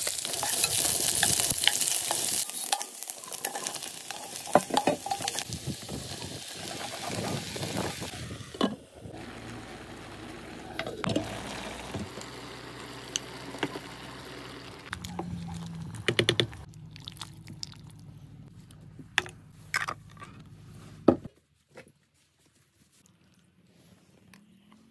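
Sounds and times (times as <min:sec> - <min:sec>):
vegetables sizzling in a frying pan: 0:00.0 - 0:08.2, 0:11.2 - 0:15.0.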